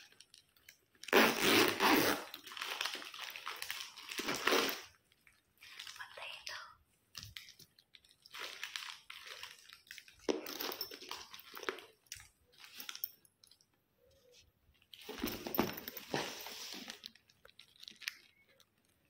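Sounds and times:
packaging rustling and crinkling: 0.0s - 6.2s, 7.1s - 13.2s, 14.2s - 19.0s.

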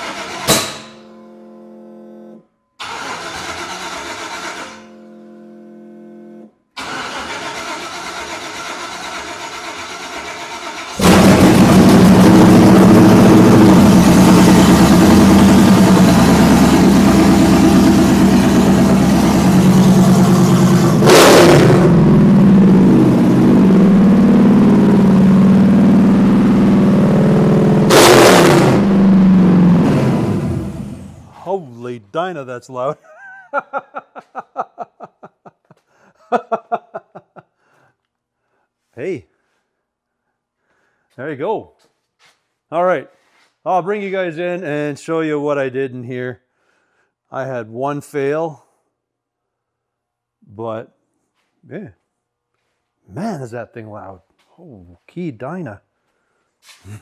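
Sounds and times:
engine cranking: 0.0s - 0.9s, 2.8s - 4.8s, 6.8s - 12.8s
loud engine running and revving: 11.0s - 31.2s.

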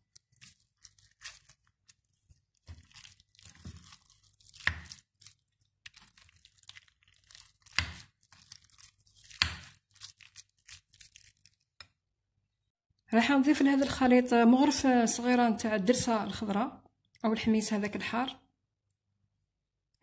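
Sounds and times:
spoon mashing wet meat mixture: 0.0s - 10.2s.

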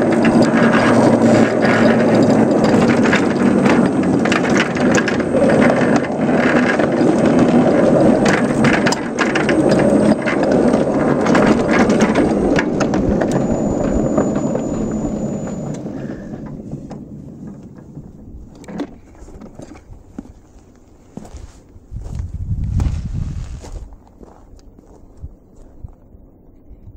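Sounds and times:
sharp track clicks: 0.0s - 19.9s
miniature train rolling rumble: 0.0s - 22.8s.

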